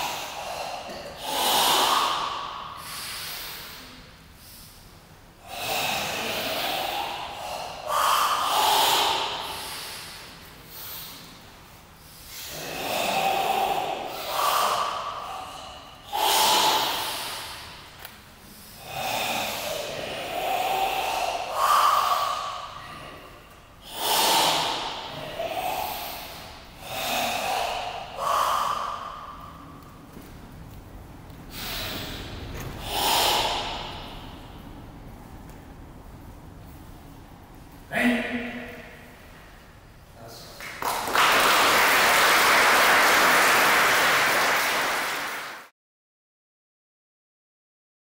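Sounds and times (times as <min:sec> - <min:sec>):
forceful hissing breaths: 0:00.0 - 0:30.7, 0:31.3 - 0:45.5.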